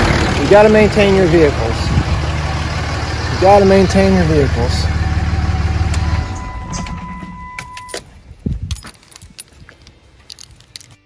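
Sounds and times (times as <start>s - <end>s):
diesel engine idling: 0.0s - 7.9s
keys jangling: 7.6s - 11.0s.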